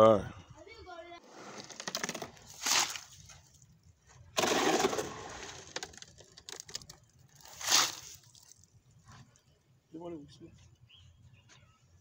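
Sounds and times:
shovel scraping wet concrete: 0:01.2 - 0:03.3, 0:04.4 - 0:05.8, 0:07.4 - 0:08.3.

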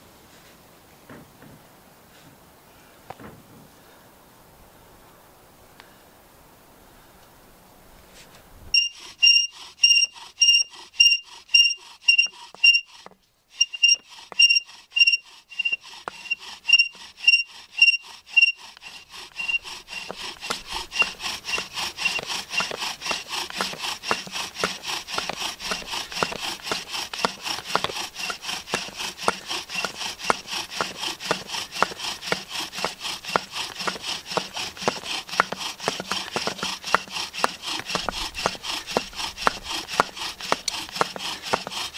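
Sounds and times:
wooden spindle grinding rub: 0:08.1 - 0:41.9
bow drill squeaking: 0:08.7 - 0:41.9.

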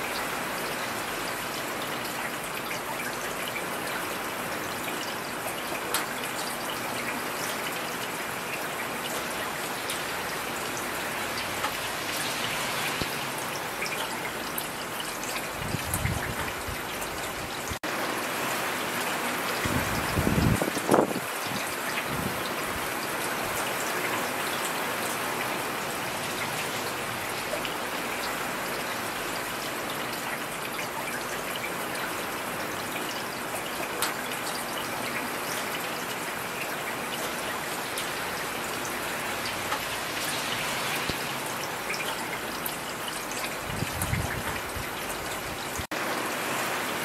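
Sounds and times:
rain drop ticks: 0:05.0 - 0:07.8, 0:09.0 - 0:13.2, 0:33.0 - 0:36.0, 0:38.9 - 0:45.4
heavy rain hissing: 0:37.7 - 0:41.9.

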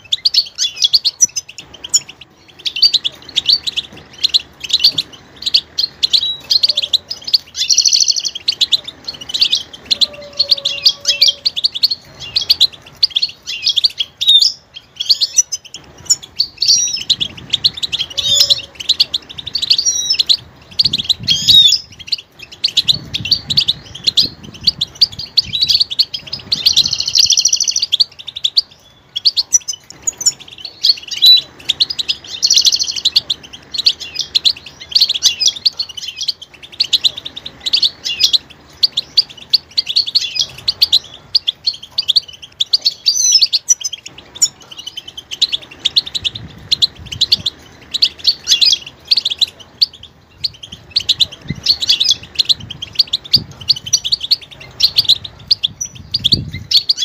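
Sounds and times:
finch singing high twittering chirps: 0:00.0 - 0:57.0.

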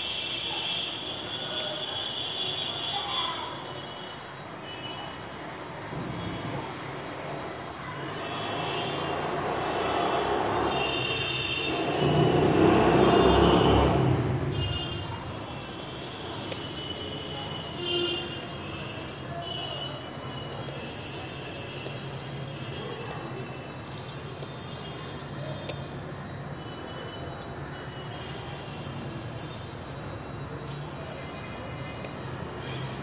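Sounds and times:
bird chirping: 0:04.4 - 0:06.4, 0:17.6 - 0:33.0.

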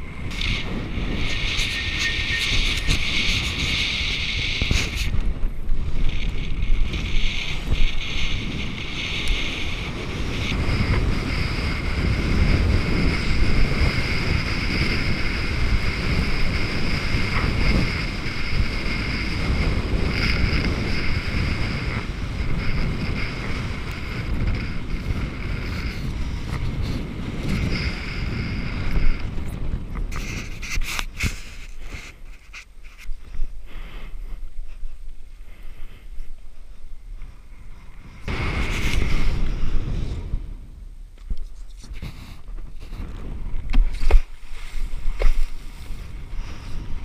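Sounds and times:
steady high-pitched whine: 0:00.0 - 0:33.6
wind buffeting microphone: 0:00.0 - 0:47.0.

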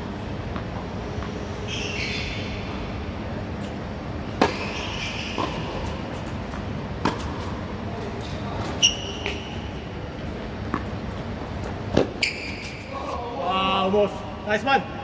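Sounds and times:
shoe squeak: 0:01.7 - 0:02.5, 0:08.7 - 0:09.7, 0:12.0 - 0:13.2
racket hitting tennis ball: 0:04.4 - 0:07.6, 0:10.6 - 0:12.8
tennis ball bouncing: 0:04.4 - 0:07.7, 0:10.6 - 0:12.2.

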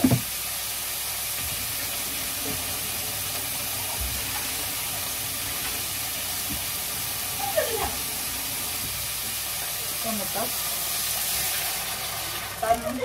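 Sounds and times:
meat frying sizzling hiss: 0:00.0 - 0:13.0.

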